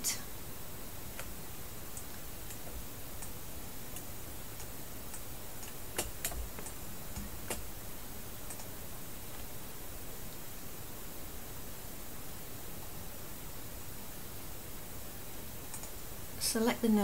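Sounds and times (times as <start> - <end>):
steady hiss: 0.0 - 17.0
computer mouse clicks: 1.9 - 7.7, 8.4 - 8.7, 15.7 - 16.0.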